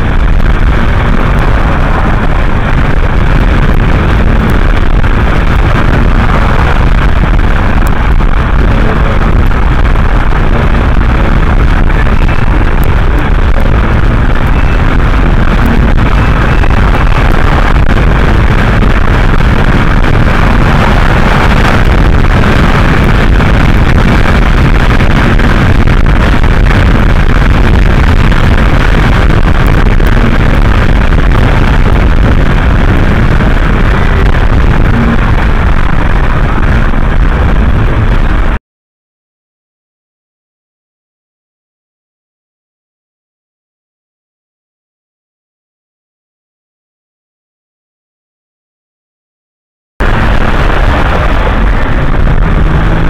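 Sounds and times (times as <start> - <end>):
road and wind noise in car: 0.0 - 38.6, 50.0 - 53.0.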